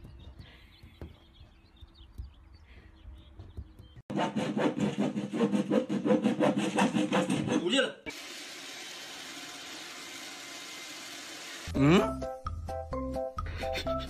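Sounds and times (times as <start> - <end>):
saw cutting wooden board: 4.1 - 11.7.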